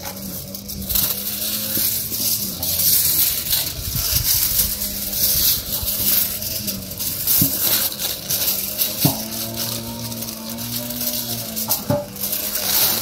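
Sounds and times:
foil crinkling and rustling: 0.0 - 13.0.

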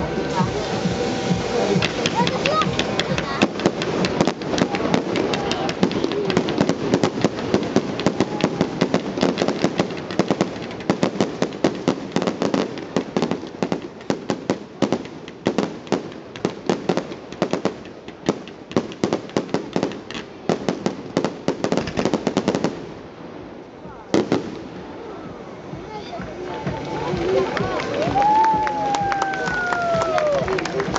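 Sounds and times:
fireworks shells bursting: 0.0 - 23.0.

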